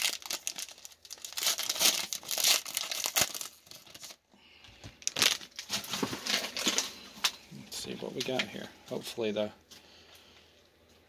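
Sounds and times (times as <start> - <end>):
plastic wrapper tearing and crinkling: 0.0 - 4.2, 5.0 - 7.4.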